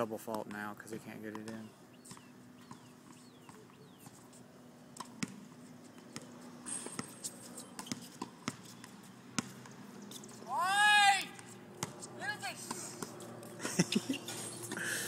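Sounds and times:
tennis ball hits and bounces: 0:01.2 - 0:04.2, 0:04.9 - 0:05.4.

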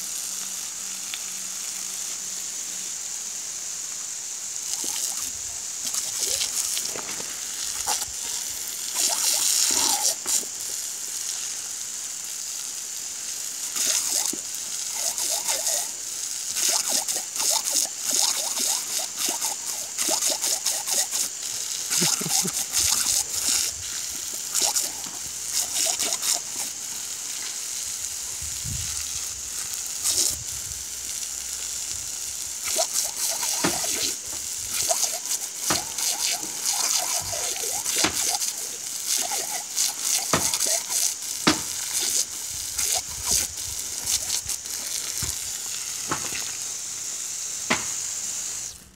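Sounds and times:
hose water jet hissing: 0:00.0 - 0:48.9
loud water splashes: 0:04.8 - 0:10.6, 0:13.8 - 0:26.8, 0:32.6 - 0:45.3.

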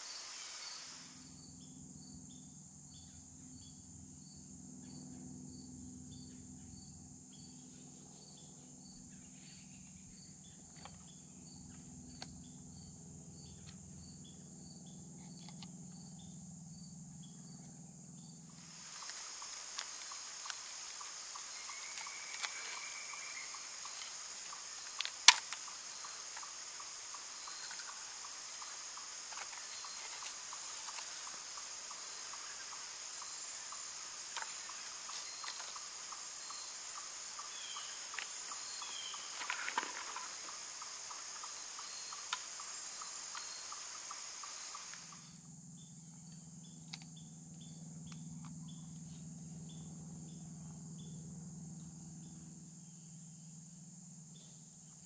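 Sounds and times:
crickets trilling: 0:00.0 - 0:55.0
sharp clicks: 0:19.0 - 0:31.7.

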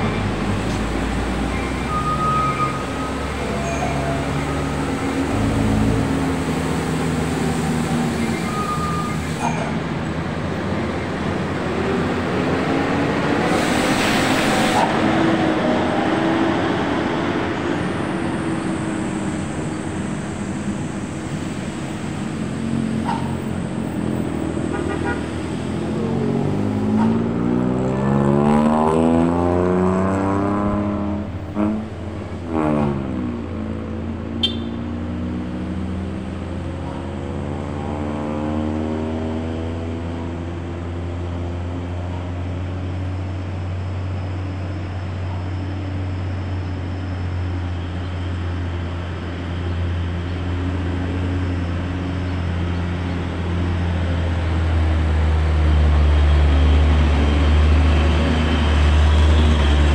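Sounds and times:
truck engines droning: 0:00.0 - 0:59.9
engine revving: 0:22.6 - 0:33.6
horn toots: 0:24.6 - 0:25.4, 0:34.4 - 0:34.8.

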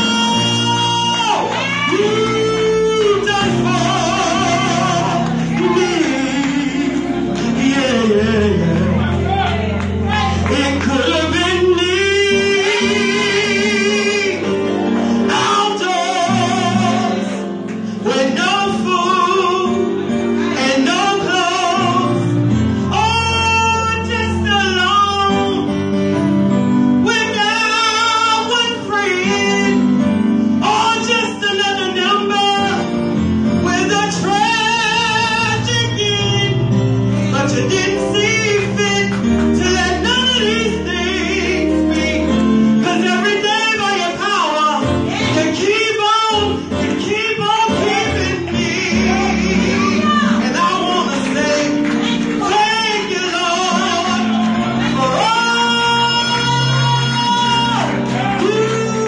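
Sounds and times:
woman singing gospel song: 0:00.0 - 0:09.4, 0:10.1 - 0:14.4, 0:15.3 - 0:17.4, 0:18.0 - 0:19.7, 0:22.9 - 0:25.6, 0:37.3 - 0:59.0
instrumental accompaniment: 0:00.0 - 0:59.0.

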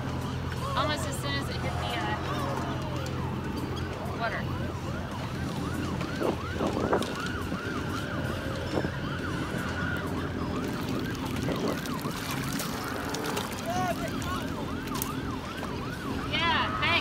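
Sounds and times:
wind rumble on microphone: 0:05.0 - 0:14.6.

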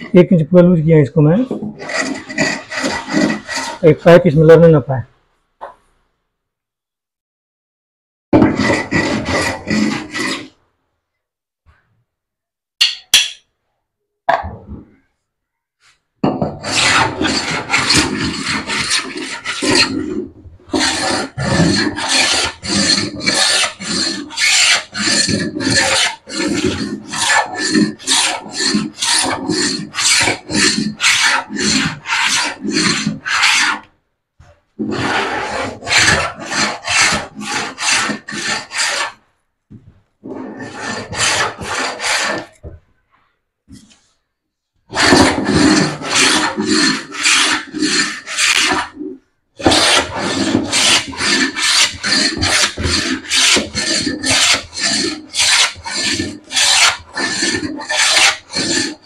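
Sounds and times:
hand tool rasping on wooden board: 0:01.6 - 0:04.0, 0:08.4 - 0:10.6, 0:16.3 - 0:33.9, 0:34.8 - 0:39.2, 0:40.2 - 0:42.7, 0:44.9 - 0:59.0.

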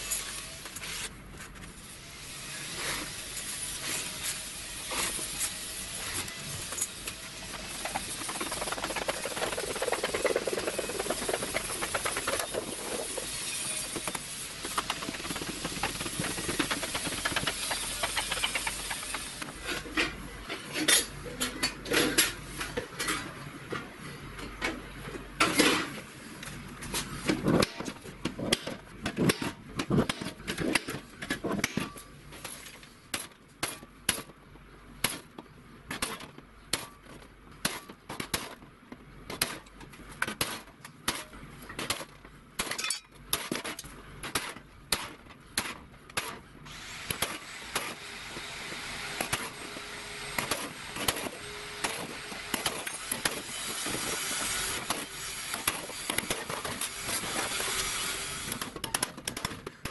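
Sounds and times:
scriber scratching metal sheet: 0:07.6 - 0:19.4.

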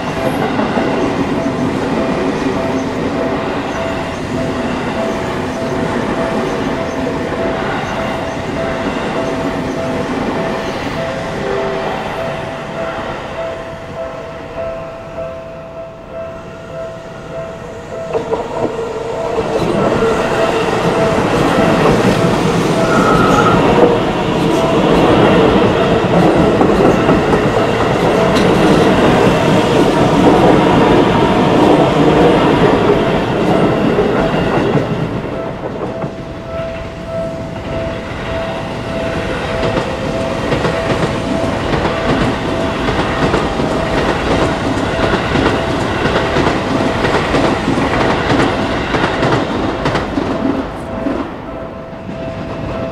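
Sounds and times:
level crossing bell ringing: 0:08.4 - 0:29.7
train wheels clacking over rail joints: 0:39.1 - 0:51.2.

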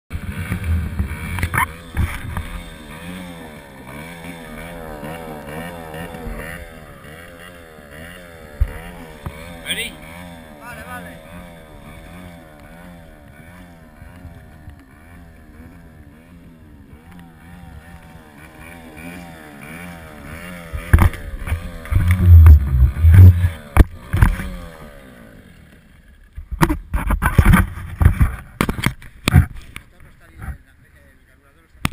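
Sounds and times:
outboard motor running: 0:00.1 - 0:30.7
loud irregular thumps: 0:20.7 - 0:24.5.

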